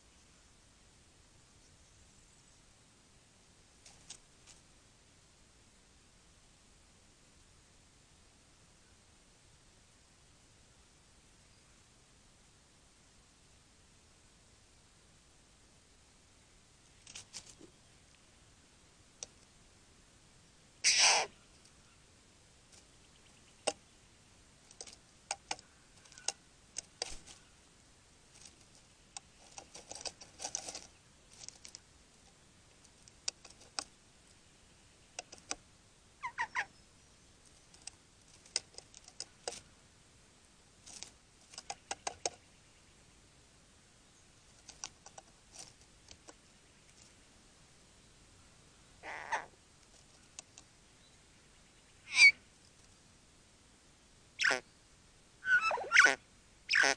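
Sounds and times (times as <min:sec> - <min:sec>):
bird harsh calls: 0:20.8 - 0:22.0, 0:36.2 - 0:36.8, 0:49.0 - 0:49.6, 0:51.9 - 0:52.4, 0:54.4 - 0:54.7, 0:55.4 - 0:56.9
bird clicking: 0:24.7 - 0:27.4, 0:35.2 - 0:35.6, 0:41.5 - 0:42.4.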